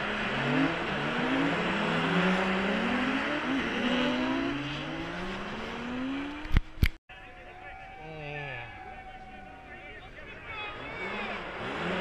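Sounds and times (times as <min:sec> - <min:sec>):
race car engines revving: 0:00.0 - 0:12.0.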